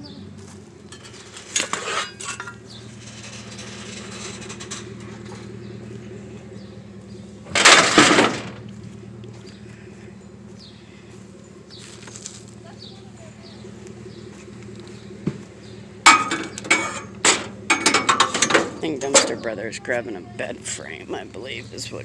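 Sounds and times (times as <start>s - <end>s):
metal frame clattering: 0.9s - 5.6s, 7.5s - 8.6s, 16.0s - 19.6s
metallic crash into truck bed: 7.4s - 8.6s, 16.0s - 19.5s.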